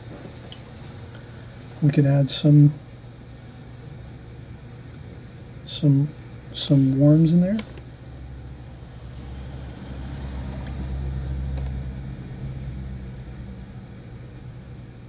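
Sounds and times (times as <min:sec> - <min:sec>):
low mechanical rumble: 0:00.0 - 0:15.0.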